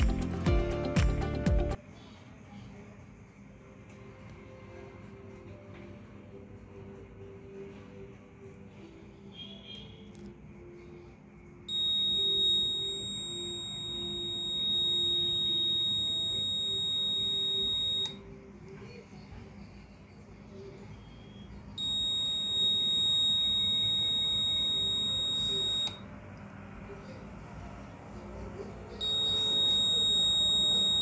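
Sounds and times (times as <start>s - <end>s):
high-pitched buzzer tone: 11.7s - 18.2s, 21.8s - 26.0s, 29.0s - 31.0s.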